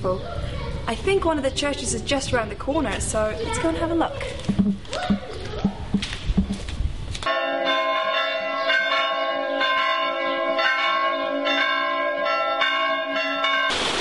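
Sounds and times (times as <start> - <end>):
church bells ringing: 7.3 - 14.0.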